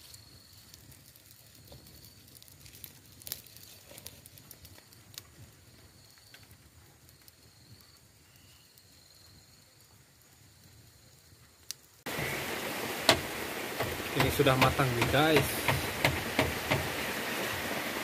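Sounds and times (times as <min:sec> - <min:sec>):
campfire crackling: 0:00.0 - 0:18.0
sharp fire pops: 0:11.6 - 0:17.2.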